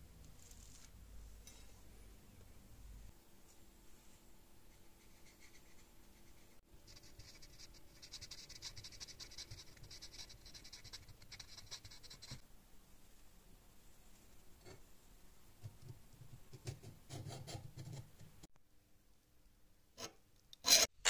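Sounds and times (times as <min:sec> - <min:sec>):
marker scratching on metal: 0:04.8 - 0:12.4.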